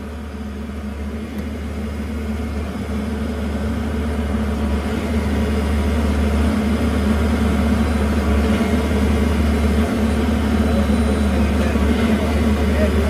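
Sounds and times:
hydraulic power unit engine running: 0:00.0 - 0:13.0.

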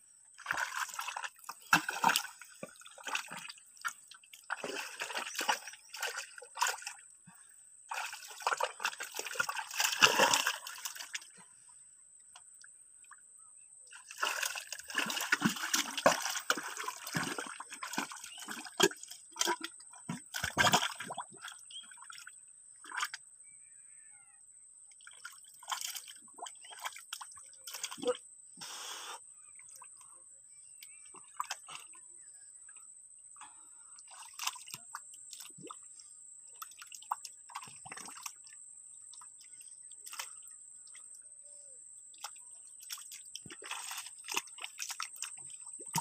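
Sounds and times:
hands sloshing in muddy water: 0:00.4 - 0:11.5, 0:13.9 - 0:23.2, 0:25.0 - 0:29.1, 0:34.0 - 0:35.8, 0:36.6 - 0:40.4, 0:42.2 - 0:46.0.

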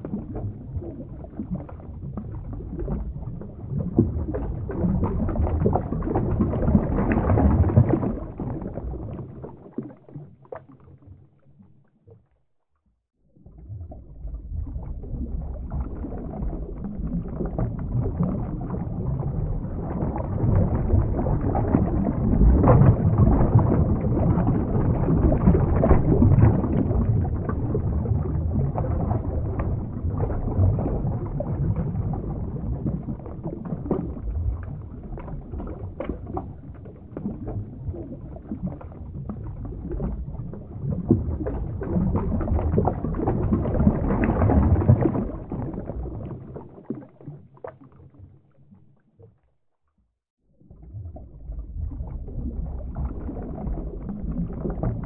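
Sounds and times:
low underwater water noise: 0:00.0 - 0:55.0
bubbly pops: 0:50.8 - 0:55.0.

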